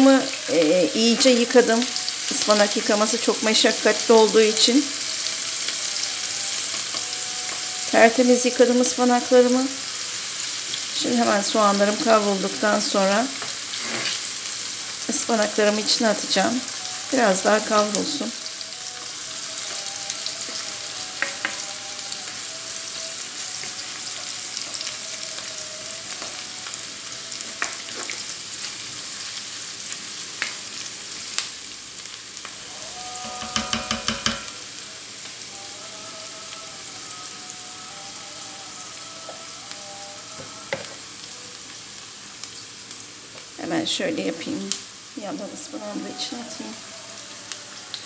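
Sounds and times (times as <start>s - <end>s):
onions sizzling in a frying pan: 0.0s - 48.0s
spatula scraping the pan: 13.4s - 14.4s, 32.9s - 34.7s
ringing knocks: 33.2s - 34.6s.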